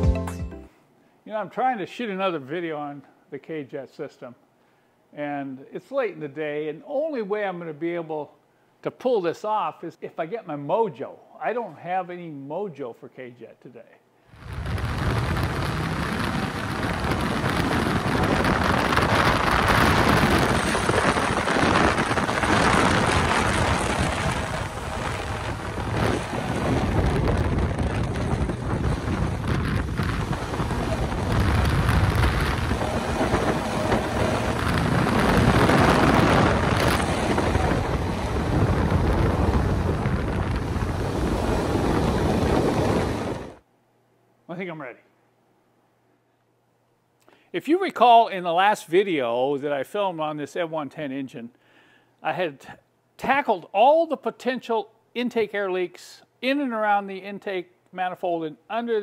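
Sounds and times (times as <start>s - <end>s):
wind buffeting microphone: 14.3s - 43.6s
motorboat engine: 14.4s - 43.6s.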